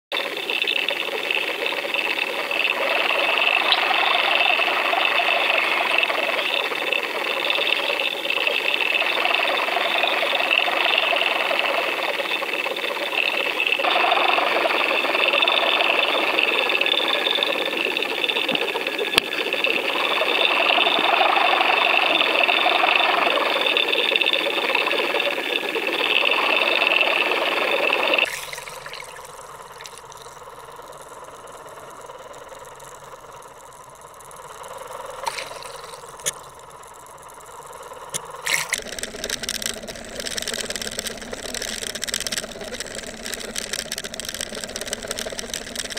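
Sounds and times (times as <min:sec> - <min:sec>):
underwater rush of water: 0:00.1 - 0:36.8
boat engine and propeller whine: 0:00.1 - 0:45.9.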